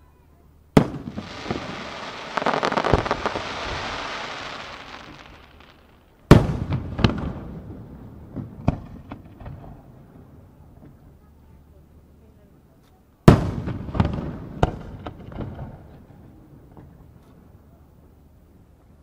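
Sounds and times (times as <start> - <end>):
fireworks crackling: 0.7 - 9.5.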